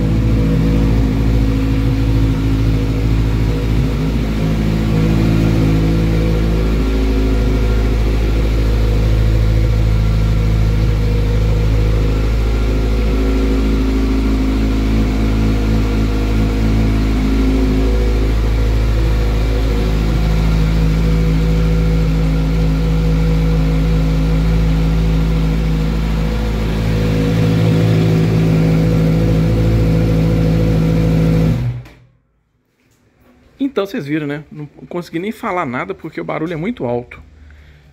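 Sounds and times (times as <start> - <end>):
loud motorcycle engine idling: 0.0 - 31.8.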